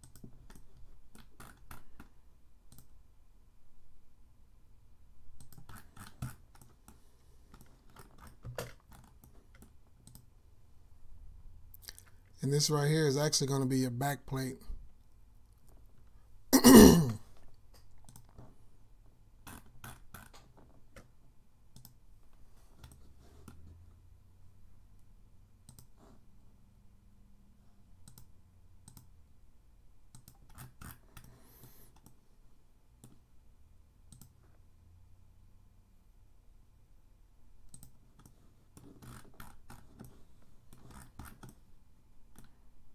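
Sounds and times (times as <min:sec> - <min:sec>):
keyboard and mouse clicking: 0:00.0 - 0:02.1, 0:02.7 - 0:03.0, 0:05.4 - 0:10.3, 0:17.8 - 0:18.5, 0:21.7 - 0:22.0, 0:22.8 - 0:23.6, 0:25.6 - 0:26.0, 0:28.0 - 0:29.2, 0:30.1 - 0:32.2, 0:33.0 - 0:33.3, 0:34.1 - 0:34.5, 0:37.6 - 0:41.6.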